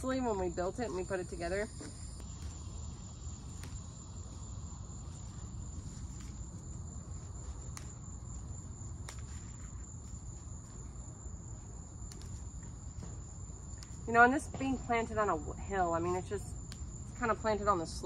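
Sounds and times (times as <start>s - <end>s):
crickets trilling: 0.0s - 18.0s
rustling and snapping foliage: 2.2s - 11.0s, 11.9s - 14.4s.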